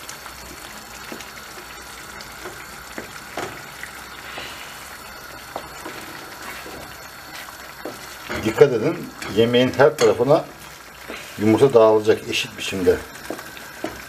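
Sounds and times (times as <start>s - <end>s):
sauce sizzling in a pan: 0.0s - 14.0s
wooden spoon stirring: 5.5s - 14.0s
spoon knocking against pan: 13.2s - 14.0s.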